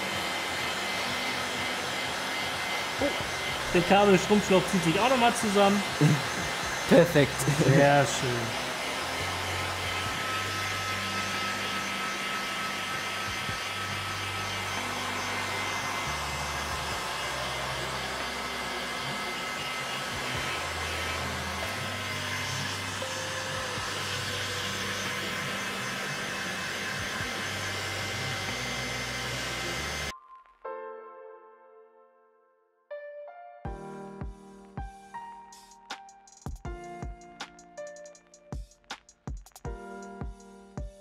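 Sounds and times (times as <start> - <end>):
hot-air blower blowing: 0.0 - 30.1.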